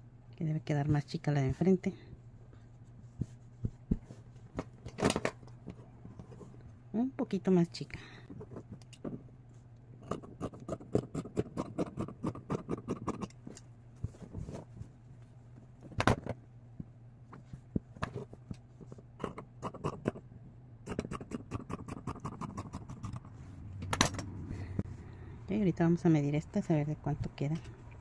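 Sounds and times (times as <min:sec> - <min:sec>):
scissors snipping fabric: 0:10.0 - 0:13.4.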